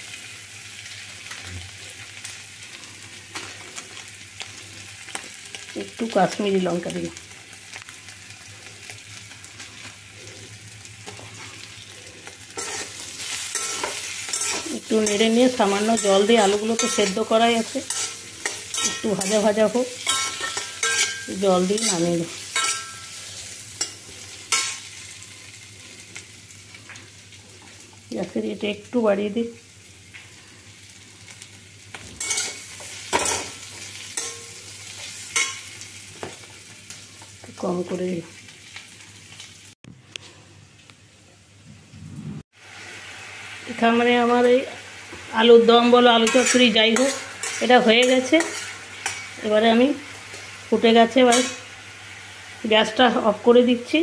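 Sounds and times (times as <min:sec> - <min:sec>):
potatoes sizzling in hot oil: 0:00.0 - 0:39.8, 0:42.5 - 0:54.0
metal spatula scraping pan: 0:12.5 - 0:24.9, 0:32.2 - 0:33.6, 0:46.2 - 0:49.4.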